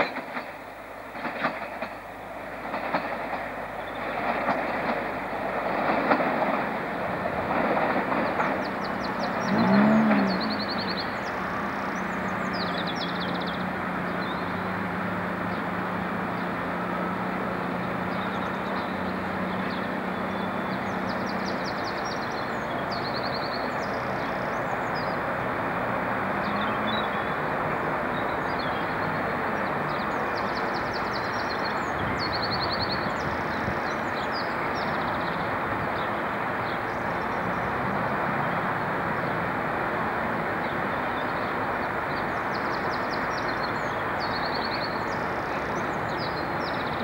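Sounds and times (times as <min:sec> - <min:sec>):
electric train humming: 0:00.0 - 0:47.0
small birds singing: 0:07.5 - 0:14.8, 0:17.7 - 0:25.4, 0:26.4 - 0:27.5, 0:28.1 - 0:37.7, 0:40.6 - 0:47.0.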